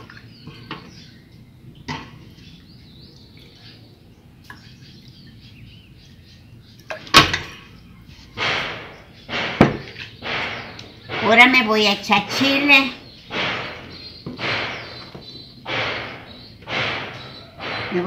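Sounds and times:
plate knocking down: 8.4 - 11.6.

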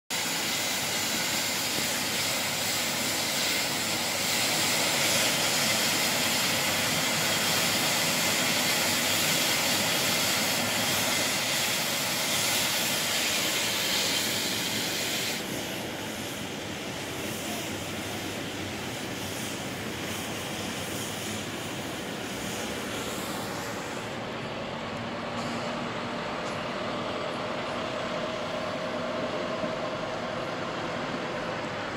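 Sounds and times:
sweeper brush hissing on asphalt: 0.2 - 24.2.

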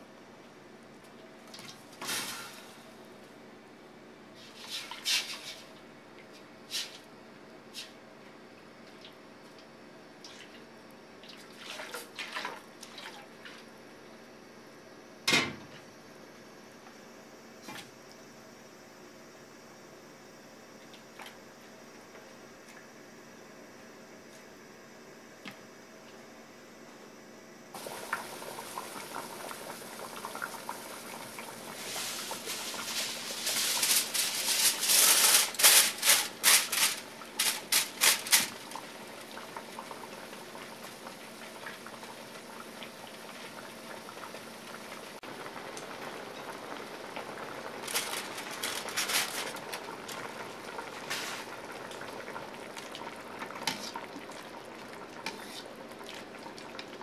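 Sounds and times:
pot of broth simmering: 27.8 - 34.8, 38.5 - 57.0
aluminium foil crinkling: 31.8 - 38.6, 47.7 - 50.3.

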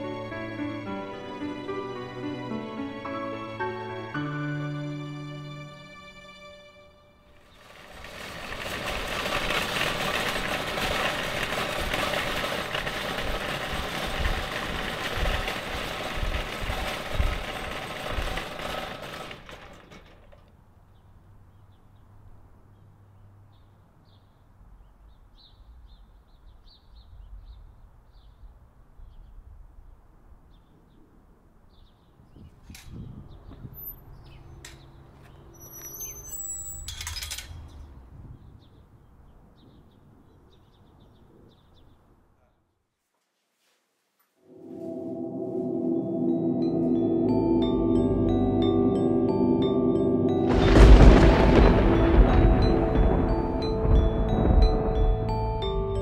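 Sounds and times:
shopping cart rattling on concrete: 7.4 - 20.4
small birds chirping: 20.9 - 29.5, 30.5 - 36.8, 37.7 - 42.7.

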